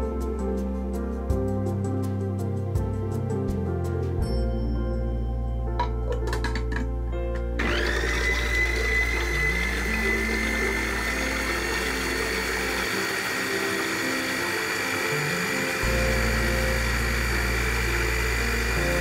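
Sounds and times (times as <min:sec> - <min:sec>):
food processor motor whirring: 0:07.6 - 0:19.0.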